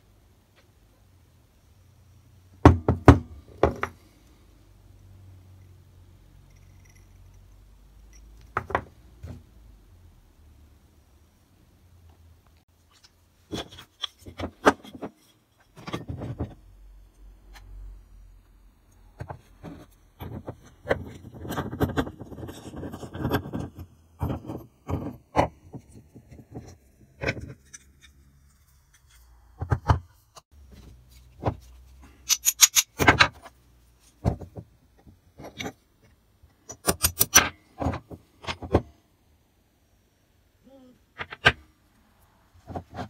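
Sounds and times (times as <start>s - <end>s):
metal clinks and knocks: 6.4s - 9.0s, 32.2s - 33.5s
metal scraping: 32.0s - 33.5s.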